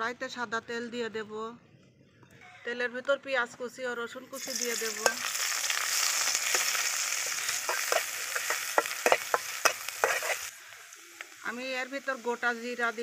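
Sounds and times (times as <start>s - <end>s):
onion sizzling in hot oil: 4.4s - 13.0s
metal spatula scraping pan: 4.9s - 10.5s.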